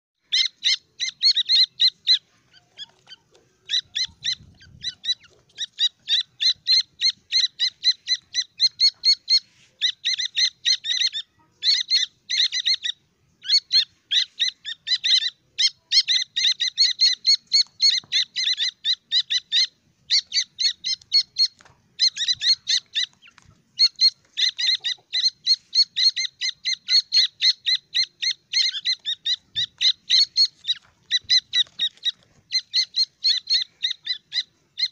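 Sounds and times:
chicks peeping: 0:00.2 - 0:34.9.

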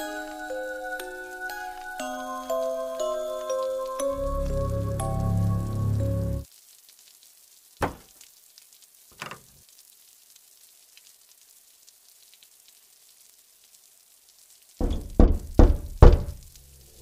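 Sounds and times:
faint steady hiss: 0:00.0 - 0:17.0
dull thumps: 0:07.8 - 0:08.1, 0:14.8 - 0:16.4.

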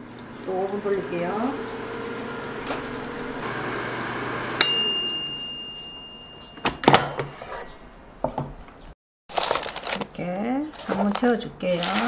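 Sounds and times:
air fryer whirring: 0:00.0 - 0:07.3
timer bell ding: 0:04.6 - 0:07.3.

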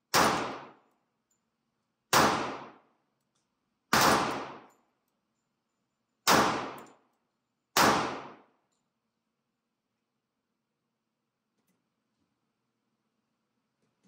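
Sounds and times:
pistol shots echoing indoors: 0:00.1 - 0:01.0, 0:02.1 - 0:03.1, 0:03.9 - 0:05.0, 0:06.2 - 0:07.1, 0:07.7 - 0:08.7.

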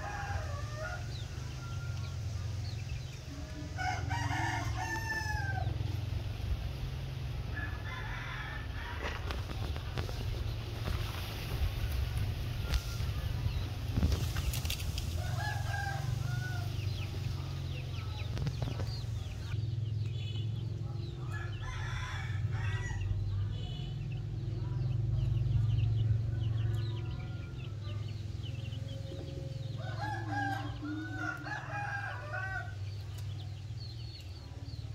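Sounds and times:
chicks chirping: 0:00.3 - 0:05.9, 0:09.1 - 0:21.6.

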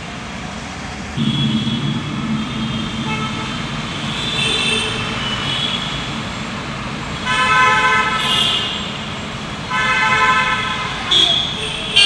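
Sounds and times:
traffic rumble: 0:00.0 - 0:12.0
vehicle horns honking: 0:01.2 - 0:12.0.

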